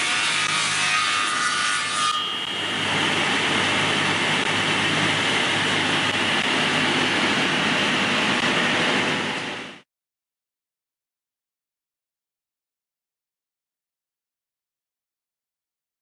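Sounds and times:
saw cutting wood: 0.0s - 9.5s
saw machine humming and whining: 0.0s - 9.8s.

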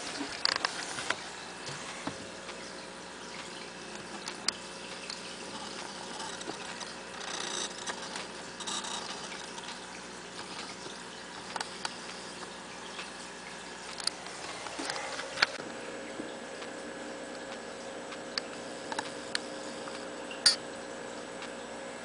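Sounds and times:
faint hum: 0.0s - 22.0s.

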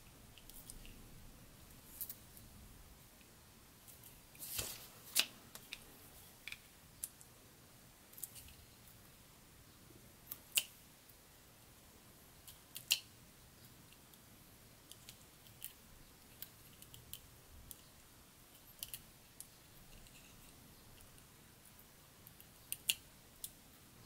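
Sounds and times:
tweezers clicking on paper: 22.2s - 23.6s.

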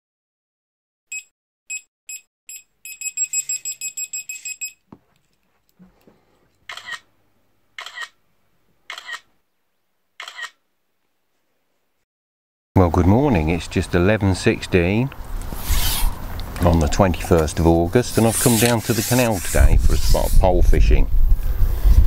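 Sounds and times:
camera self-timer beeps: 1.1s - 4.8s, 6.7s - 7.0s, 7.8s - 8.1s, 8.9s - 9.2s, 10.2s - 10.6s
camera click: 6.7s - 7.0s, 7.8s - 8.2s, 8.9s - 9.3s, 10.2s - 10.6s.

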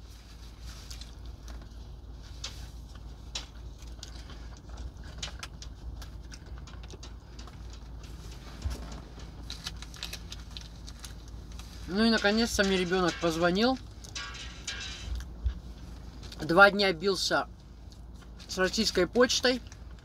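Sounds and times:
low hum: 0.0s - 18.5s.

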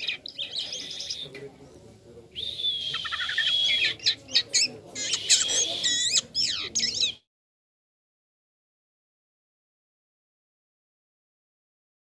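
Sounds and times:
starling singing whistles and chirps: 0.0s - 1.4s, 2.3s - 7.3s.

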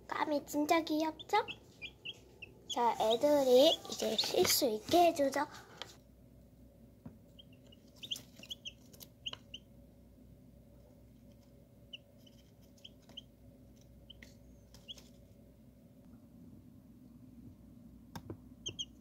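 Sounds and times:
chicks peeping: 1.0s - 4.6s, 7.3s - 9.7s, 11.9s - 15.2s, 18.6s - 19.0s.

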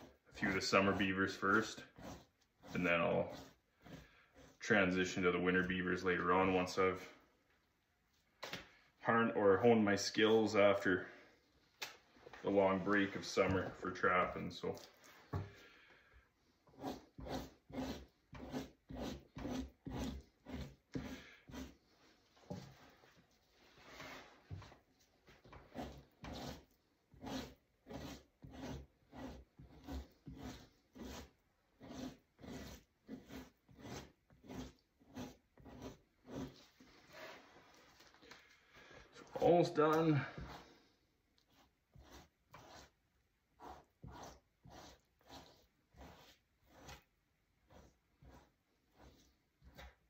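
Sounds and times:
knife scraping hide: 0.0s - 5.7s, 16.6s - 38.0s, 39.2s - 50.0s.

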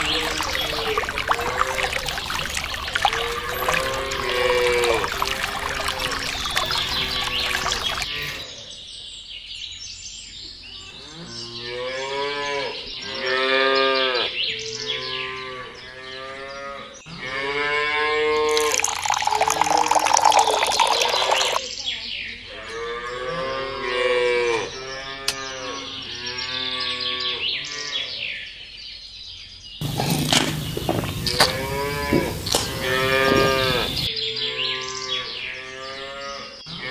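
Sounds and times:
cattle mooing: 0.0s - 8.4s, 31.1s - 34.1s
water pouring: 0.0s - 8.4s, 18.4s - 21.6s, 29.8s - 34.1s.

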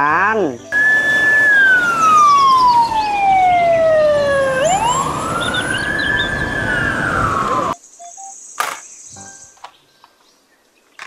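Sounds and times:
road noise: 0.4s - 7.8s
fire engine siren wailing: 0.7s - 7.8s.

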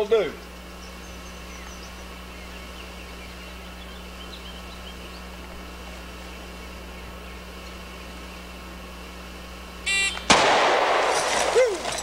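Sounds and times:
electrical hum and hiss: 0.0s - 12.0s
faint bird chirps: 0.3s - 5.4s.

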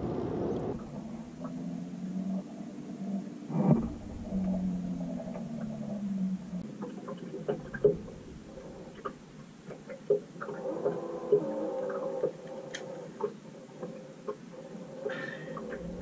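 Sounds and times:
boat motor humming: 0.0s - 9.7s, 15.1s - 16.0s.

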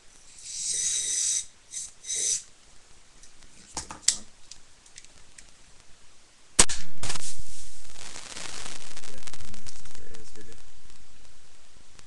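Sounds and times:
hiss: 0.3s - 2.5s
sharp crack: 6.6s - 12.0s.

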